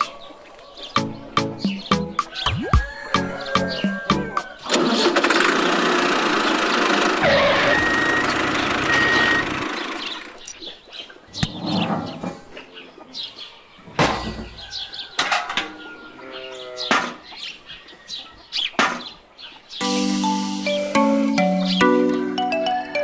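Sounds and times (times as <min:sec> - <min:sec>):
birds chirping: 0:00.0 - 0:05.4, 0:06.2 - 0:22.8
toy tractor motor running: 0:04.7 - 0:10.4.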